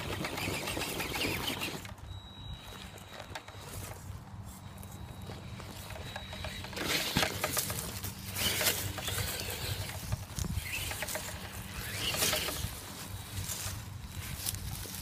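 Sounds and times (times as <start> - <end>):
toy truck motor hum: 0.0 - 15.0.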